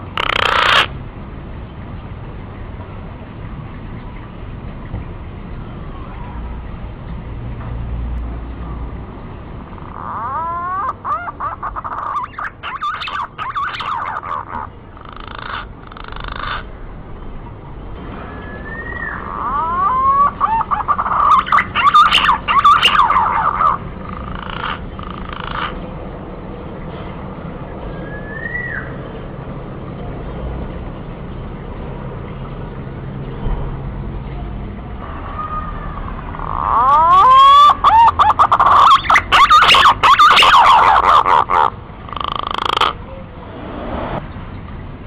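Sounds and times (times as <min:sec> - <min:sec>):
pigeon whistled calls: 0:10.1 - 0:14.7, 0:18.2 - 0:23.8, 0:27.9 - 0:29.0, 0:36.6 - 0:43.0.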